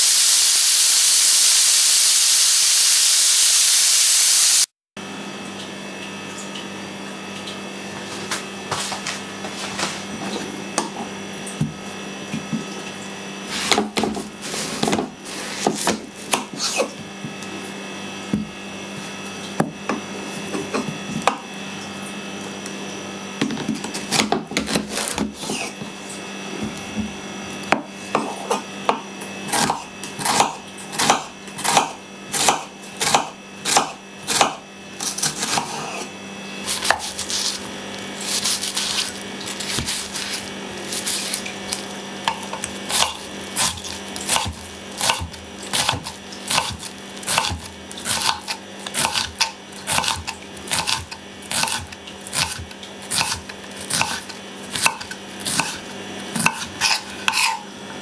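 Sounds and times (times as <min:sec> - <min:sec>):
knife slicing onion: 0:13.5 - 0:17.0, 0:23.4 - 0:25.8, 0:27.7 - 0:57.7.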